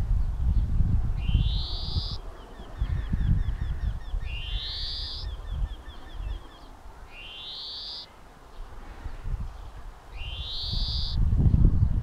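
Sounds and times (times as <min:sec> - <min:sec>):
finch singing: 0:01.2 - 0:11.2.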